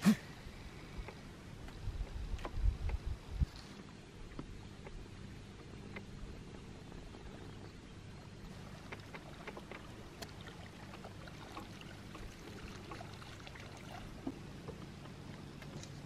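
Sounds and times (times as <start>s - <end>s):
water splashes and drips: 8.5s - 14.8s.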